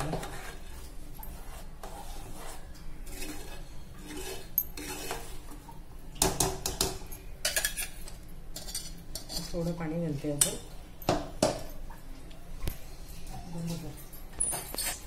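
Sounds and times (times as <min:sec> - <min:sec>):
spoon stirring curry in metal pot: 0:00.0 - 0:05.5.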